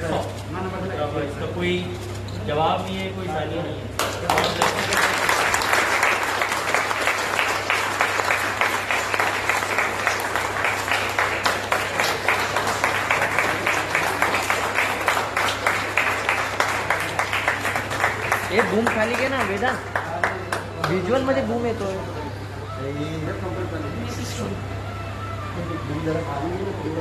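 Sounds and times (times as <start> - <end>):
people clapping: 4.0 - 21.5.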